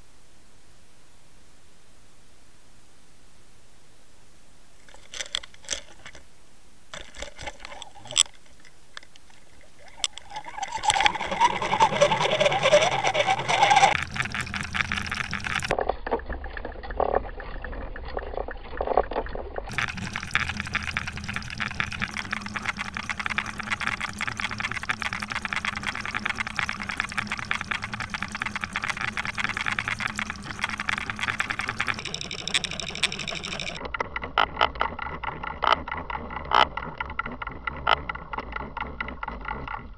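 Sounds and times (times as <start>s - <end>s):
sharp clicks underwater: 4.8s - 6.3s, 6.9s - 39.9s
fast ticking rattle: 6.9s - 17.2s, 19.7s - 39.9s
water rushing past camera: 8.9s - 18.9s, 19.6s - 33.8s.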